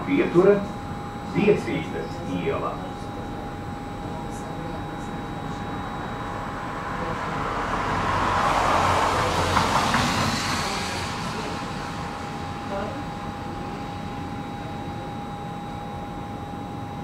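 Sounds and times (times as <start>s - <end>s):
tram electrical hum: 0.0s - 17.0s
vehicle passing outside: 6.3s - 12.8s.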